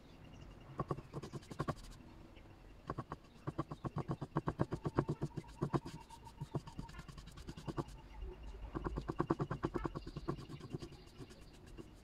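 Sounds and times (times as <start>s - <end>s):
paintbrush scrubbing on rough wood: 0.8s - 2.0s, 2.9s - 8.1s, 8.8s - 12.0s.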